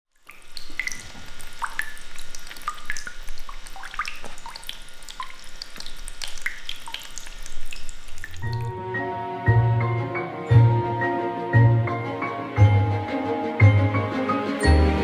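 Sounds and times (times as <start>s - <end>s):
pet water fountain splashing: 0.2s - 8.7s.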